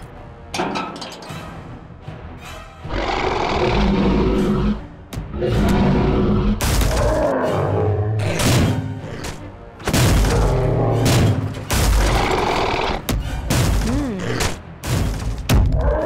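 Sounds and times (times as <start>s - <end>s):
dinosaur roaring: 2.9s - 8.5s.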